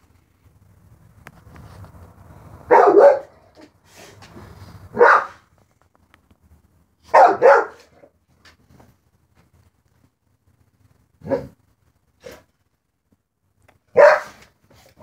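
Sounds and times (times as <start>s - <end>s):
dog barking loudly: 2.6s - 3.7s, 4.9s - 5.5s, 7.0s - 8.1s, 11.2s - 11.6s, 13.9s - 14.5s.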